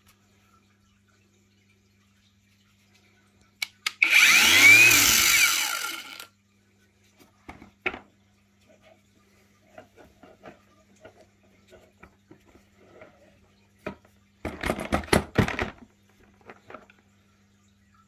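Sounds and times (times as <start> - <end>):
tools rattling and knocking: 14.4 - 16.9.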